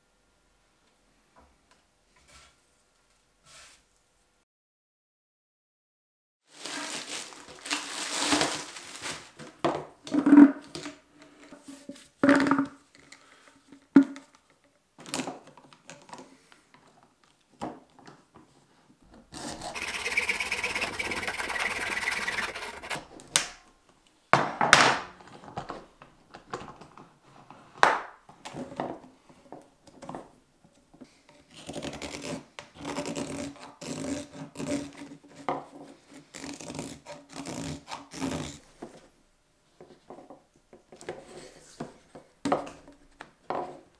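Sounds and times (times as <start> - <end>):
hacksaw cutting plastic: 19.3 - 23.6, 31.5 - 35.1
knife scraping plastic: 19.3 - 23.6, 31.3 - 38.7.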